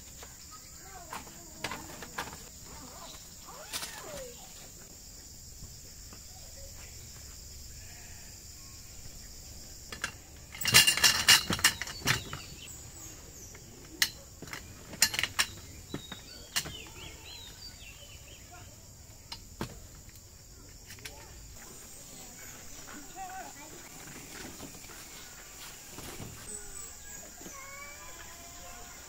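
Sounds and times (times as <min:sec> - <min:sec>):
metal tent poles clattering: 0:01.0 - 0:02.8, 0:09.8 - 0:17.6.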